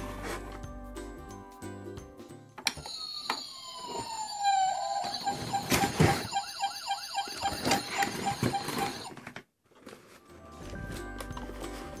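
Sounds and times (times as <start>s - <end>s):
toy fire engine siren wailing: 2.8s - 9.1s.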